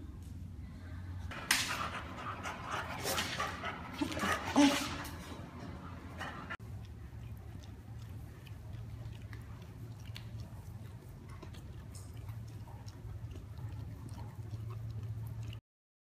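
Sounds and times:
low steady hum: 0.0s - 15.6s
dog sucking and licking bottle: 6.7s - 15.6s.

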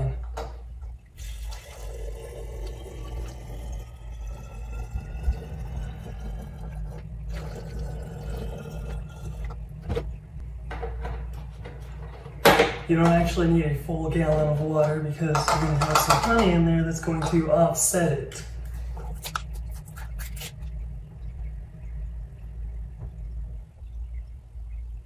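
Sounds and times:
water pouring into glass jug: 1.2s - 9.7s.

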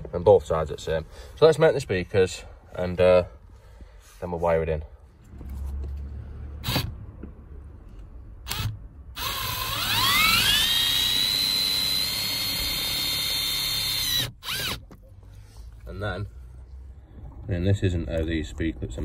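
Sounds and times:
cordless screwdriver motor whine: 8.5s - 14.8s.

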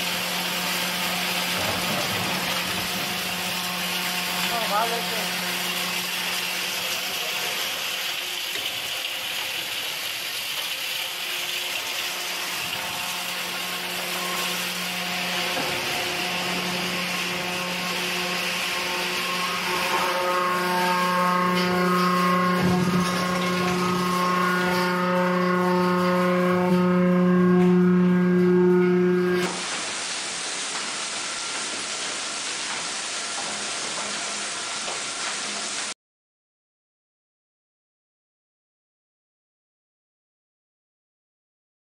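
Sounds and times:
low hum: 12.1s - 29.4s.

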